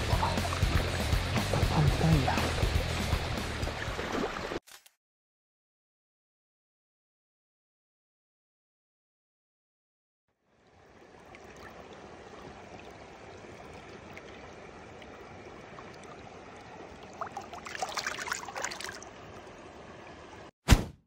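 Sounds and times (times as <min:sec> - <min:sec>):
stream water running: 0:00.0 - 0:04.6, 0:10.3 - 0:20.5
water splashing: 0:00.0 - 0:04.6, 0:10.7 - 0:20.5
loud thump: 0:20.7 - 0:21.0.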